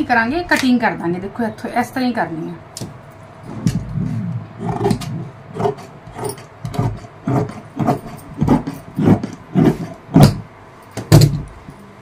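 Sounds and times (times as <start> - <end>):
shears cutting fabric: 4.0 - 10.4.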